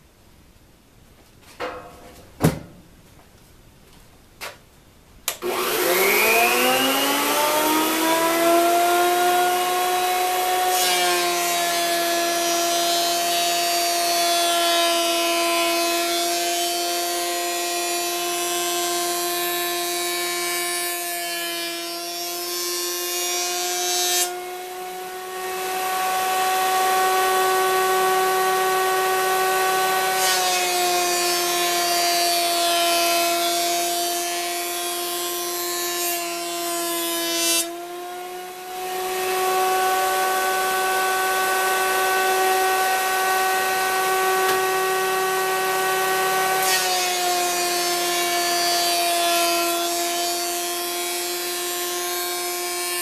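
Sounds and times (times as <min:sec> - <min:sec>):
jointer motor whine: 0:05.3 - 0:11.7, 0:38.2 - 0:47.6.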